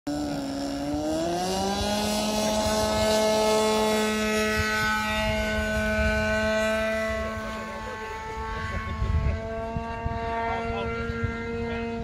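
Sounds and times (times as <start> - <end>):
model plane engine revving: 0.1 - 12.0.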